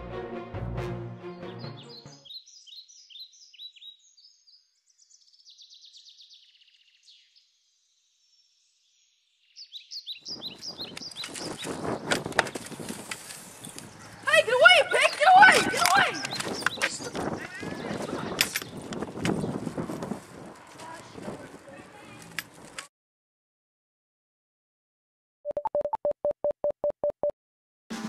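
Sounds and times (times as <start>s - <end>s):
birds chirping: 1.4s - 7.6s, 8.3s - 22.7s
outdoor rustling noise: 10.2s - 22.9s.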